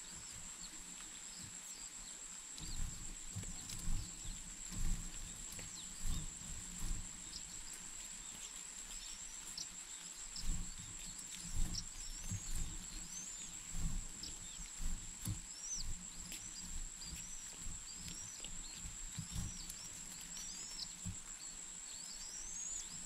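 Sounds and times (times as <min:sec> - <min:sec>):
soft thumps and rustling: 0:02.6 - 0:09.6, 0:10.4 - 0:21.3.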